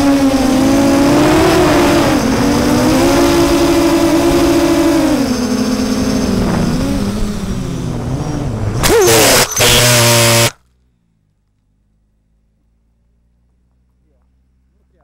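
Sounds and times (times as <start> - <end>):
quadcopter motors whining: 0.0 - 10.6
quadcopter crashing into grass: 8.8 - 10.6.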